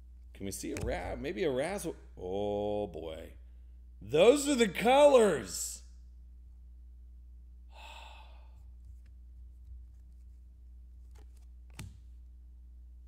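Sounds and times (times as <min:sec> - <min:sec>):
low steady hum: 0:00.0 - 0:13.0
soft breathy sigh: 0:07.7 - 0:08.7.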